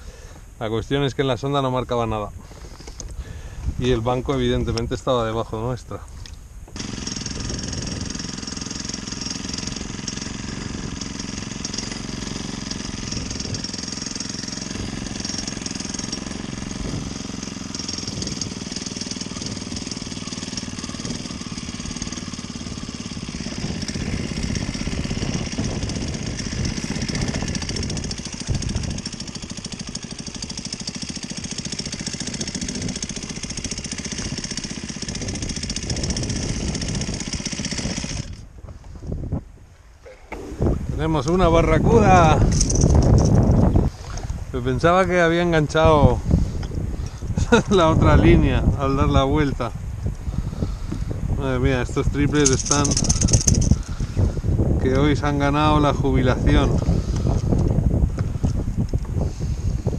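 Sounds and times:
outboard motor running: 2.4 - 59.9.

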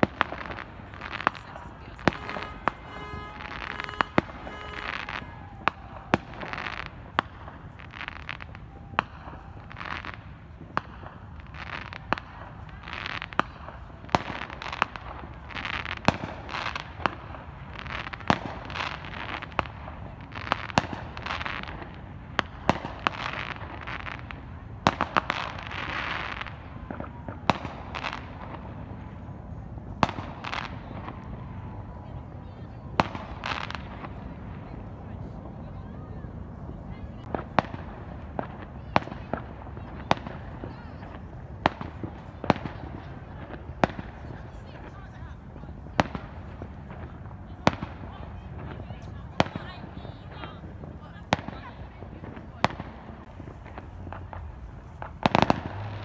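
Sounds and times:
fireworks bangs: 0.0 - 56.0
fireworks hissing bursts: 0.2 - 5.4.

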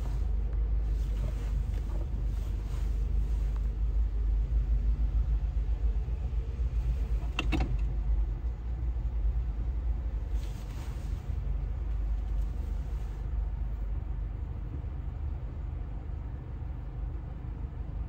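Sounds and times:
car road noise rumble: 0.0 - 18.0.

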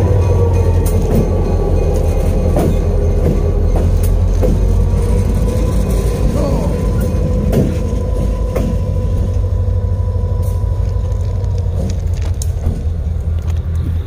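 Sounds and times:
diesel locomotive engine rumbling: 0.0 - 14.0.

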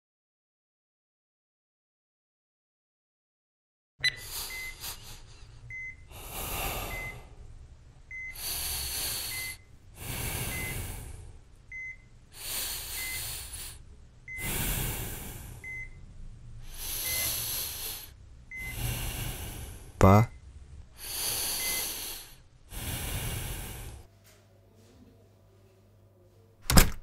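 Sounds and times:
patient monitor beeping: 4.0 - 7.4, 8.1 - 16.1, 16.7 - 22.3
heavy rasping breaths: 4.2 - 7.4, 8.1 - 11.5, 12.3 - 16.0, 16.6 - 20.0, 21.0 - 24.1.

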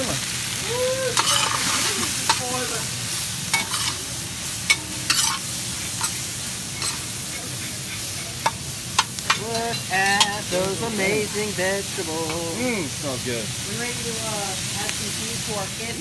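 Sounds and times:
vegetables sizzling in a wok: 0.0 - 16.0
metal utensil scraping a pan: 1.2 - 2.8, 3.5 - 11.0.

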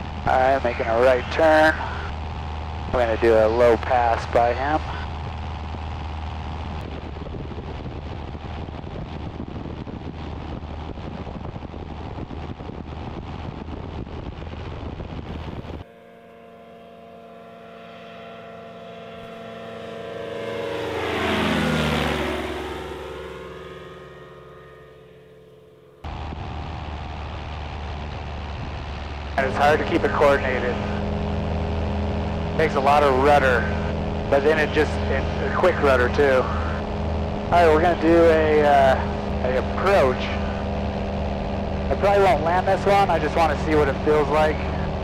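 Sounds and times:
wind noise: 0.0 - 15.9, 26.0 - 45.0
aircraft passing overhead: 0.0 - 45.0
light aircraft engine drone: 0.0 - 45.0.

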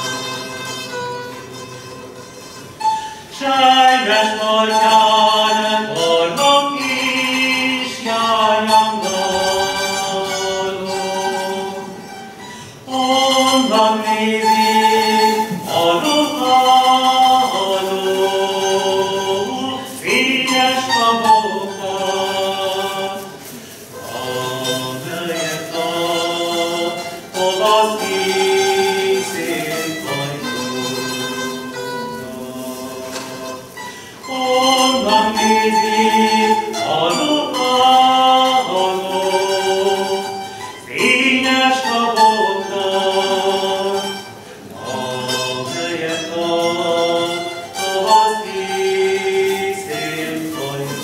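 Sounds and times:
zither ensemble playing: 0.0 - 51.0
people singing together: 3.3 - 51.0.

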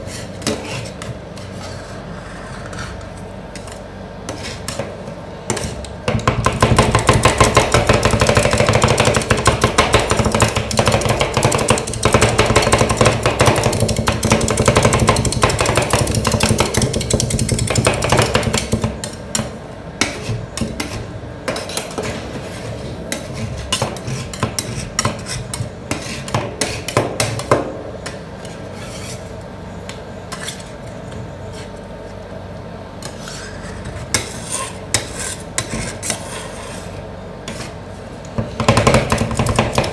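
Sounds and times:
spatulas chopping on metal plate: 5.5 - 22.1, 23.1 - 28.2, 38.4 - 39.9
spatula scraping metal plate: 28.4 - 29.3, 33.0 - 37.8.

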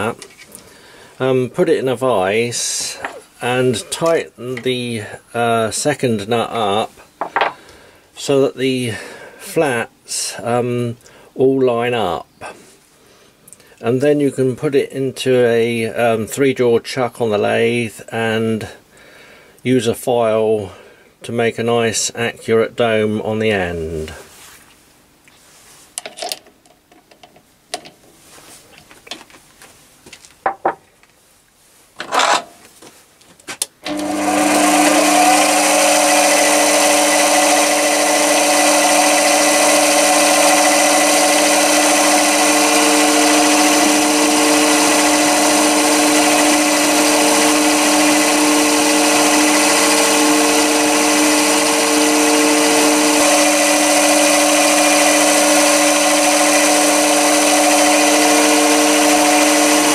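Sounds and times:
lathe motor whining: 33.8 - 59.9.

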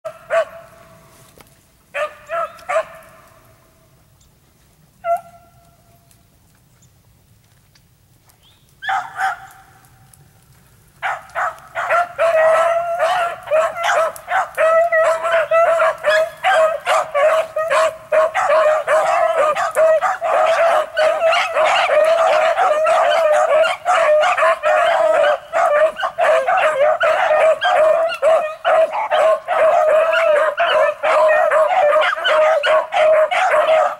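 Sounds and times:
beagles baying: 11.0 - 33.9.

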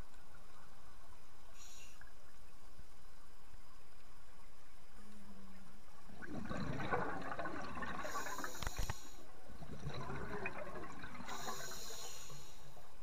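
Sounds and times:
underwater air bubbling: 4.8 - 13.0.

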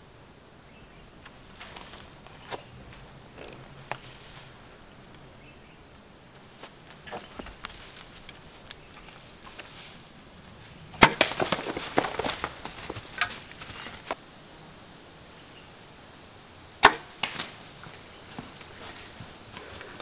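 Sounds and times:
animal clattering through brush: 1.2 - 4.7, 6.4 - 14.2, 17.2 - 20.0
arrow striking: 11.0 - 12.6, 16.8 - 17.7
bow string crack: 16.8 - 18.0.

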